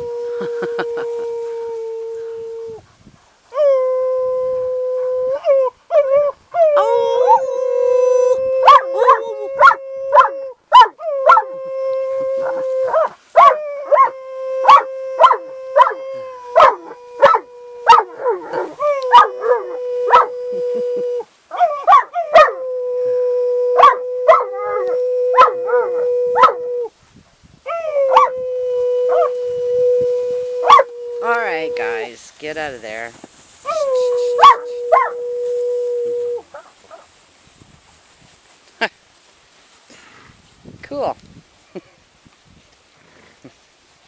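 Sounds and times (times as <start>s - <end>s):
man howling: 0.0s - 2.8s, 6.6s - 10.5s, 11.2s - 26.9s
dog howling: 5.2s - 26.9s, 27.7s - 32.1s, 33.7s - 36.4s
yelping barks: 8.7s - 11.4s, 21.5s - 22.6s.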